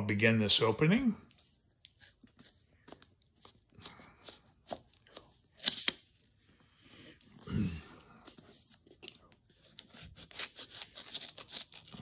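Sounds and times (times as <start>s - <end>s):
wrapping paper crinkling: 8.6s - 12.0s.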